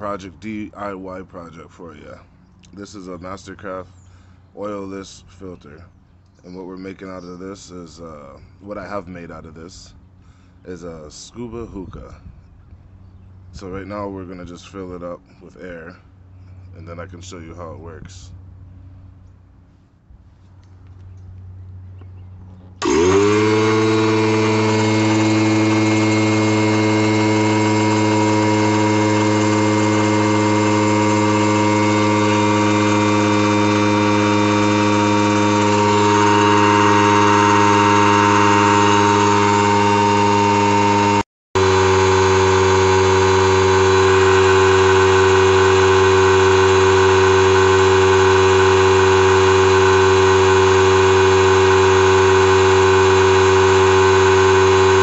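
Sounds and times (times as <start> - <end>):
air compressor running: 22.7 - 55.0.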